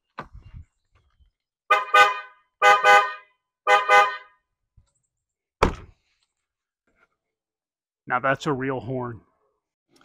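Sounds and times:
car horn multi-tone honks: 0:01.7 - 0:04.4.

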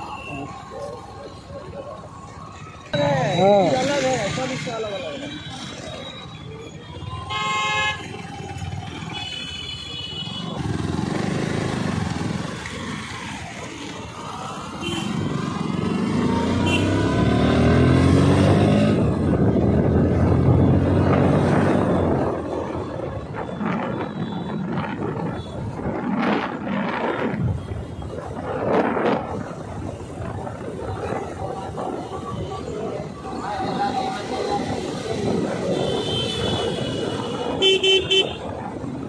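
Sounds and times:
street traffic: 0:00.0 - 0:39.0
motor vehicle engine accelerating: 0:15.5 - 0:22.0
vehicle horn honk: 0:35.8 - 0:38.4.

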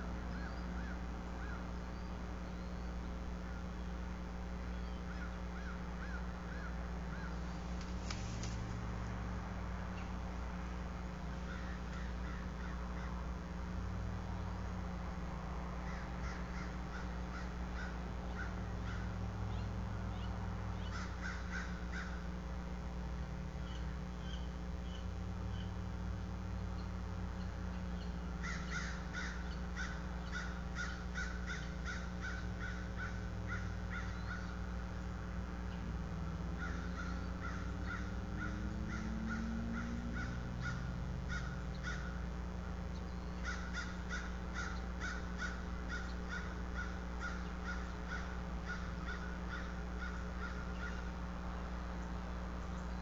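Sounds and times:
crows cawing: 0:00.3 - 0:01.8, 0:05.0 - 0:07.5, 0:11.3 - 0:13.5, 0:15.8 - 0:19.3, 0:20.8 - 0:22.4, 0:28.3 - 0:34.8, 0:36.5 - 0:42.4, 0:43.4 - 0:51.4.

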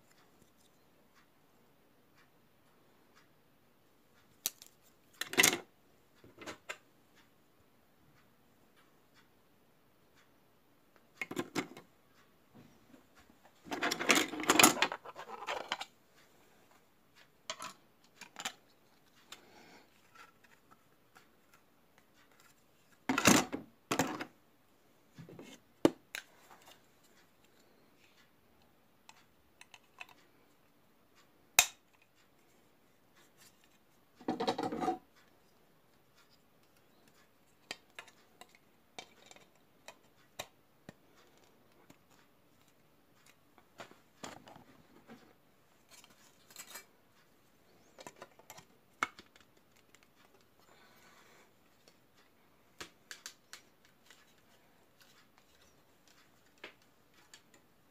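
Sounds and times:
plastic parts clicking and scraping: 0:04.4 - 0:06.8, 0:11.2 - 0:11.9, 0:13.5 - 0:15.9, 0:17.4 - 0:24.4, 0:29.1 - 0:30.3, 0:36.2 - 0:50.8, 0:51.7 - 0:57.6.

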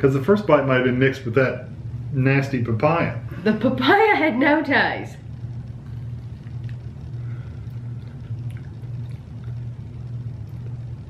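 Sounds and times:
low room hum: 0:00.0 - 0:11.0
person chewing fruit: 0:05.9 - 0:09.8.

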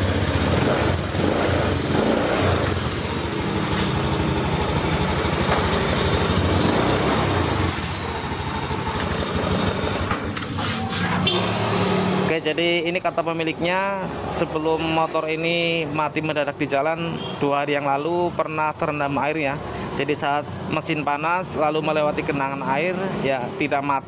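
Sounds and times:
scooter engine running: 0:00.0 - 0:10.6.

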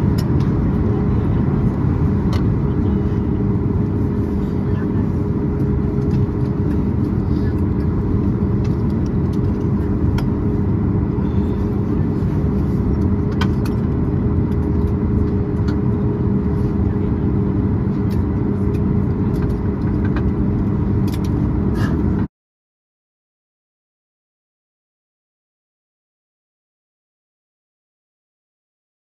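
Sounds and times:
aircraft cabin rumble: 0:00.0 - 0:22.3.

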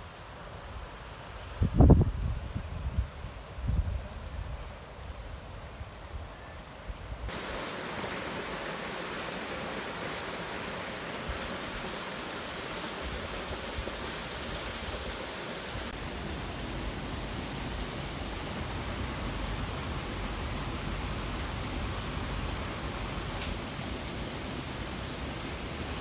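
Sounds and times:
wind rumble on microphone: 0:01.4 - 0:05.8
steady hiss: 0:07.0 - 0:26.0.

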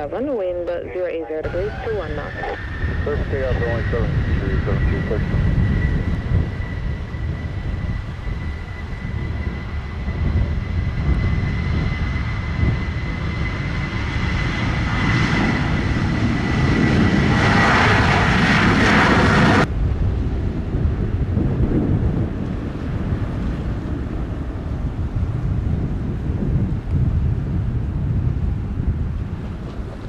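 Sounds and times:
jet engines spooling up: 0:00.0 - 0:19.7
wind rumble on microphone: 0:00.0 - 0:30.0.

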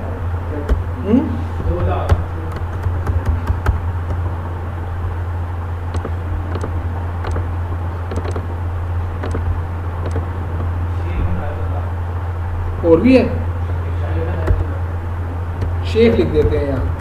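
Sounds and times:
low electrical hum: 0:00.0 - 0:17.0
keyboard and mouse clicks: 0:01.8 - 0:04.3, 0:05.9 - 0:07.5, 0:08.1 - 0:08.5, 0:09.2 - 0:10.7.

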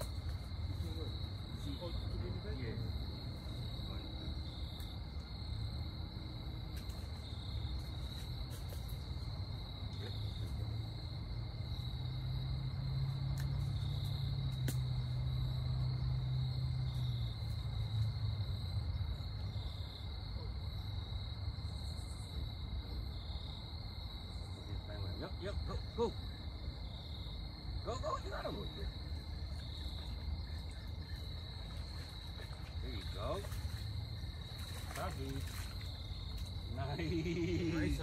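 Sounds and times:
insect chorus trilling: 0:00.0 - 0:38.0.

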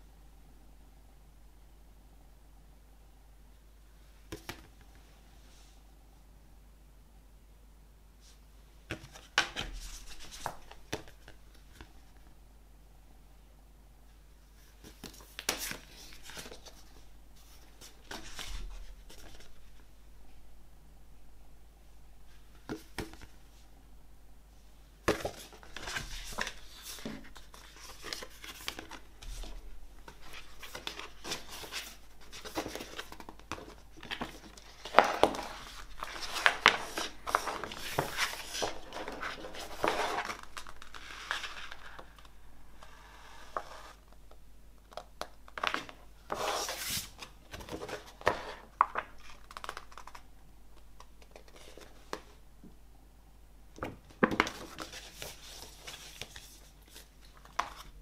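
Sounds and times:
paper and card rustling: 0:25.1 - 0:44.0, 0:45.6 - 0:50.2, 0:54.2 - 0:58.0.

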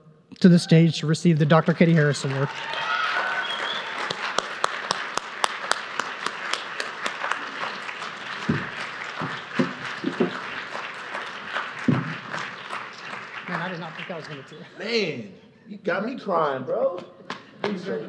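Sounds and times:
audience applauding: 0:01.4 - 0:15.2.

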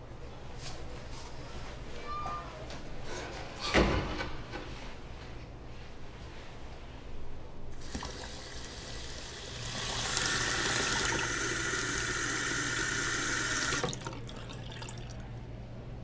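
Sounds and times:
tap water running into sink: 0:07.8 - 0:15.2.

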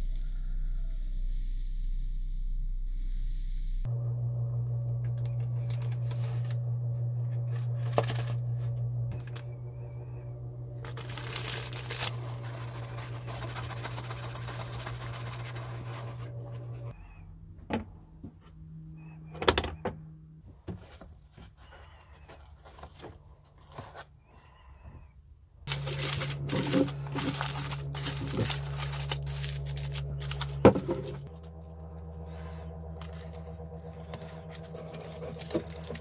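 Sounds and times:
low machine hum: 0:00.0 - 0:21.0, 0:25.3 - 0:36.0
paper funnel rustling: 0:05.0 - 0:16.9, 0:20.8 - 0:24.1, 0:25.7 - 0:36.0.

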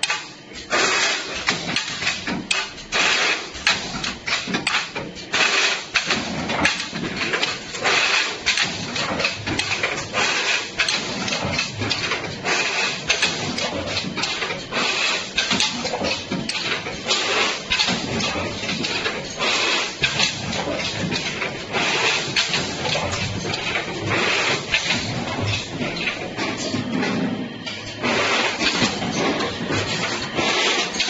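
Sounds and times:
steady machine noise: 0:00.0 - 0:31.0
metal clanks and knocks: 0:13.1 - 0:31.0.

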